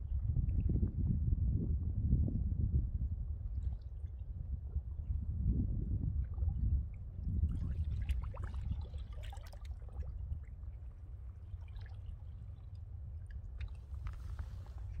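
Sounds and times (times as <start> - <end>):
seawater lapping among rocks: 6.1 - 15.0
water trickles and drips: 6.2 - 15.0.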